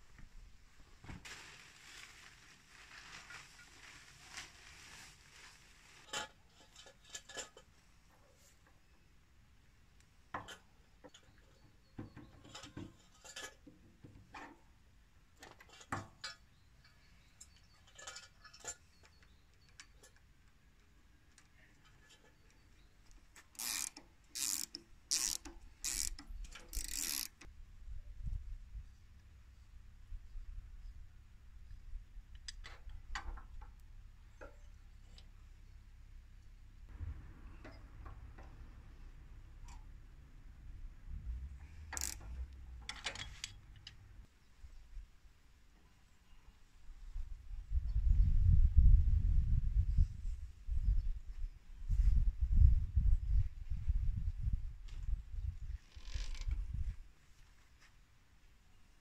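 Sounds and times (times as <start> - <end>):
plastic tarp rustling: 1.0 - 6.2
ratcheting wrench strokes: 23.6 - 27.5, 41.9 - 43.5.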